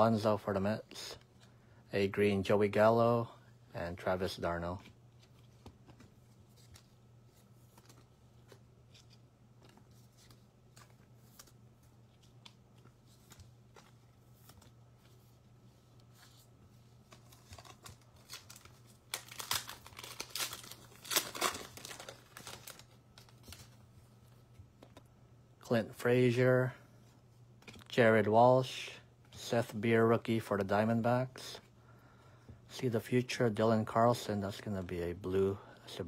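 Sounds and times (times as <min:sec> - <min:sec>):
low steady hum: 0:00.0 - 0:36.0
wrapper tearing and crinkling: 0:17.2 - 0:23.7.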